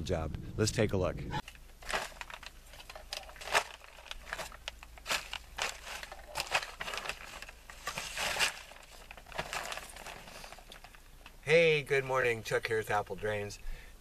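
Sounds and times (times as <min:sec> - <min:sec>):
plastic sheeting crinkling: 0:01.4 - 0:11.4.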